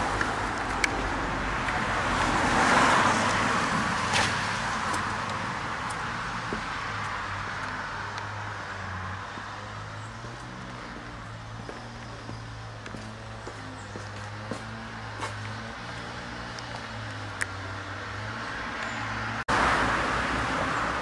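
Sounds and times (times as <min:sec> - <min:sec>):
road traffic: 0:00.0 - 0:21.0.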